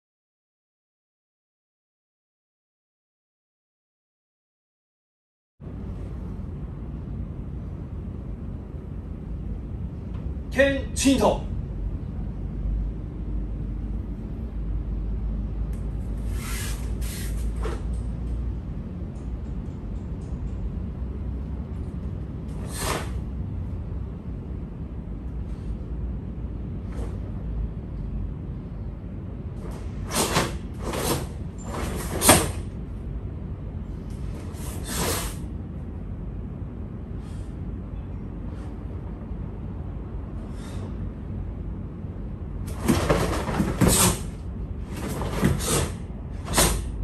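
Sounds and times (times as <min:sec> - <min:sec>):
low room rumble: 0:05.6 - 0:47.0
steady low hum: 0:05.6 - 0:47.0
stiff fabric swishes: 0:42.7 - 0:46.9.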